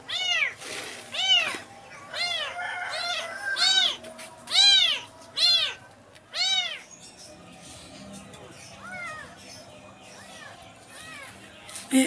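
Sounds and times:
kittens mewing: 0:00.1 - 0:06.9.

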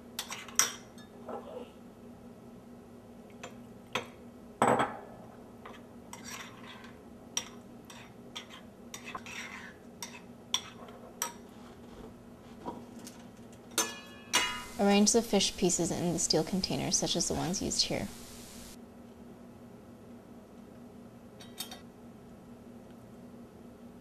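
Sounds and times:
metal spoon scraping ceramic bowl: 0:06.2 - 0:07.0, 0:07.9 - 0:10.8.

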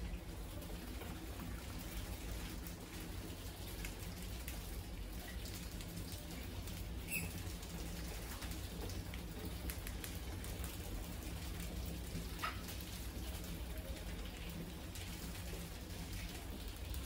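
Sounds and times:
low steady hum: 0:00.0 - 0:17.0
mouse squeak: 0:07.1 - 0:07.4.

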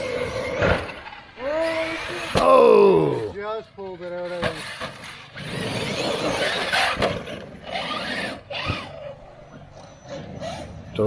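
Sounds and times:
electric rc truck motor whining: 0:00.0 - 0:03.3, 0:04.2 - 0:11.0
tyres scrabbling in dirt: 0:03.9 - 0:11.0.

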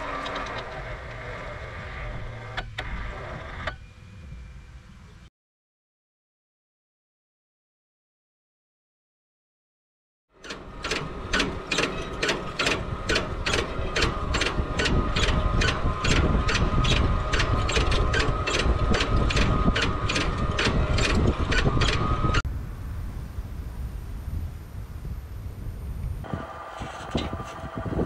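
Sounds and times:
robot machine rumble with whine: 0:00.0 - 0:05.3, 0:10.4 - 0:28.0
regular mechanical clicking: 0:10.4 - 0:22.4.

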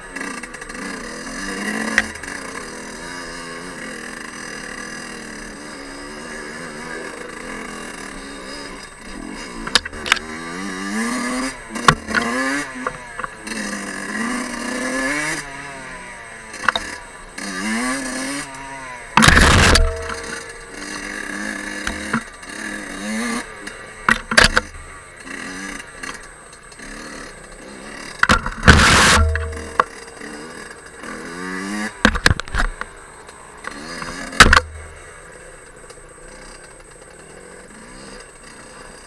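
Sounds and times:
two-stroke engine revving: 0:00.0 - 0:39.0
knocks and clatter from bumps: 0:19.2 - 0:20.6, 0:28.2 - 0:30.0.

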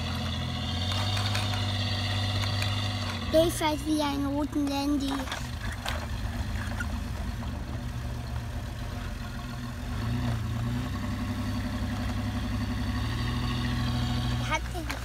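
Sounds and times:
engine idling drone: 0:00.0 - 0:15.0.

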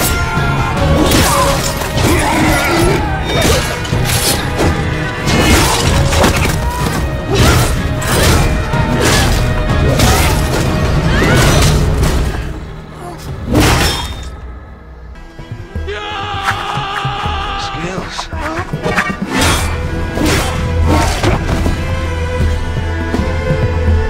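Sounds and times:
clashing hits and blows: 0:00.0 - 0:12.6
dramatic music with heavy beat: 0:00.0 - 0:24.0.

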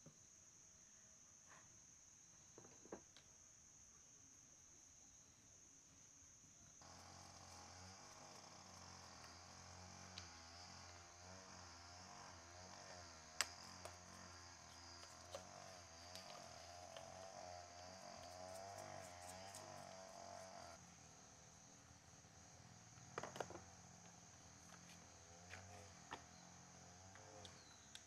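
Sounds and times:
high hiss: 0:06.8 - 0:21.2.

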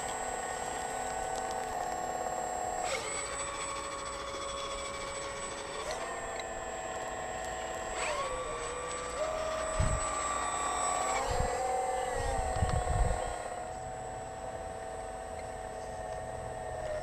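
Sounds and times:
hydraulic pump whining: 0:00.0 - 0:17.0
wind buffeting microphone: 0:09.6 - 0:10.2, 0:11.2 - 0:13.4.

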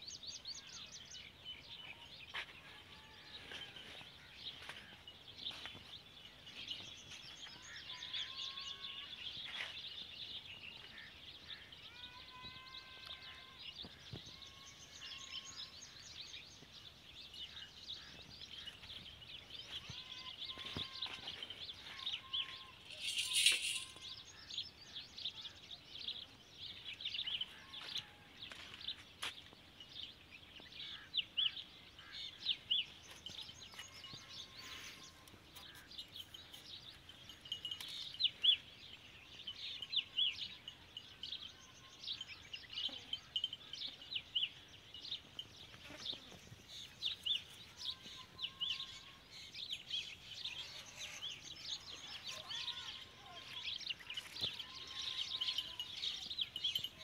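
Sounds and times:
small birds chirping: 0:03.3 - 0:57.0
bird whistled calls: 0:22.9 - 0:24.0.

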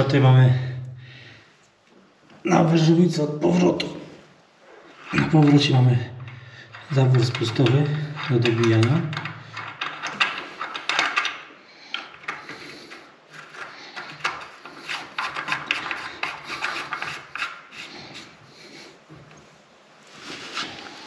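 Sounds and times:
metal fittings scraping and clicking: 0:05.0 - 0:18.4.

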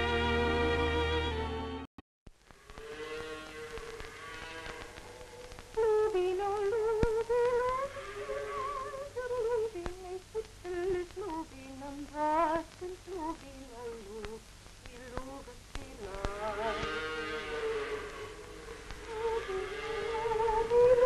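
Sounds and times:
old film soundtrack crackle: 0:00.0 - 0:21.0.

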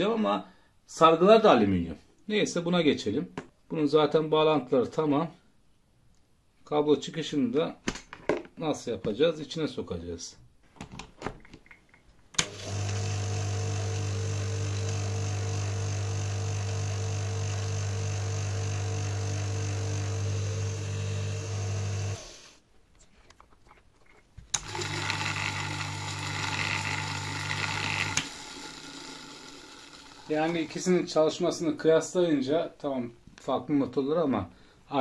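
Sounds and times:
dishwasher pump motor running: 0:12.4 - 0:22.4, 0:24.6 - 0:30.6.

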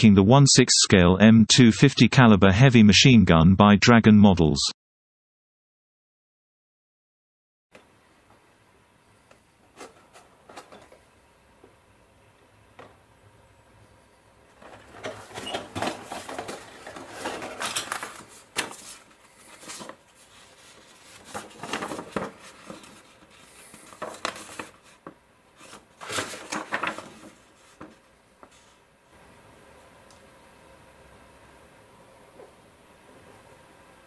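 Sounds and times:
paper sheet rustling: 0:14.6 - 0:28.8.

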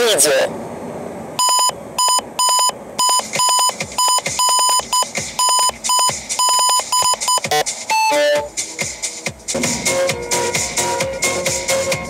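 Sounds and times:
electronic tones: 0:01.4 - 0:08.5
rapid electronic beeping: 0:01.4 - 0:08.5.

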